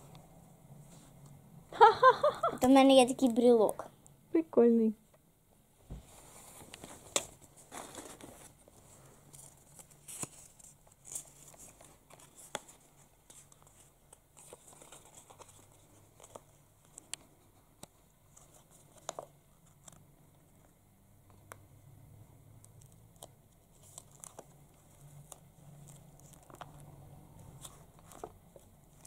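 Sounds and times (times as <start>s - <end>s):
paper and tape crinkling: 6.6s - 20.0s, 22.8s - 29.0s.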